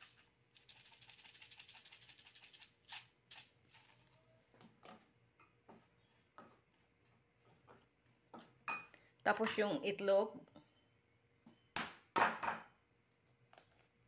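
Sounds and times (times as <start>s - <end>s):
pepper grinder rattling: 0.0s - 4.2s.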